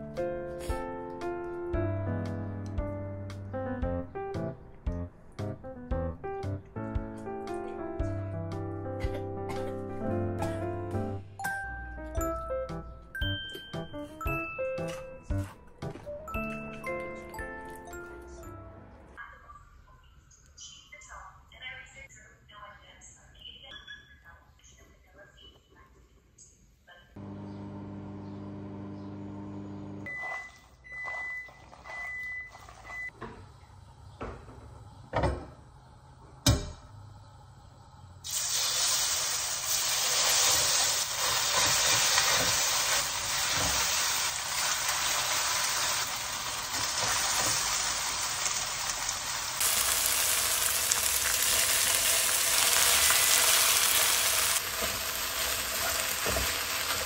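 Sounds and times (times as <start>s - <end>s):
meat sizzling in a frying pan: 38.3s - 57.0s.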